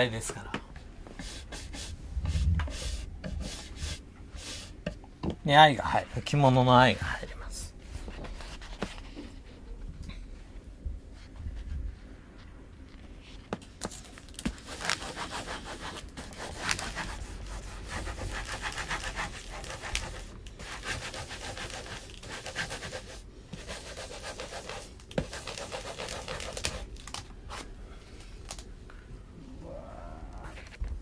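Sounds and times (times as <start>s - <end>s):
scratchy rubbing on paper: 1.2s - 4.8s, 14.5s - 26.9s.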